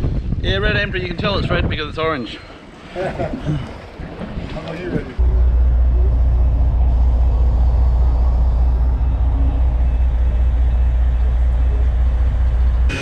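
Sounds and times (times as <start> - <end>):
boat engine low drone: 5.0 - 13.0.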